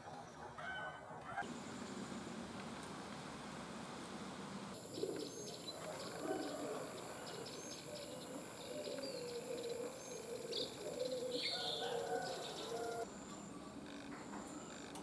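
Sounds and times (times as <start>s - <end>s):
steady high-pitched whine: 1.4s - 15.0s
birds cooing: 4.8s - 14.2s.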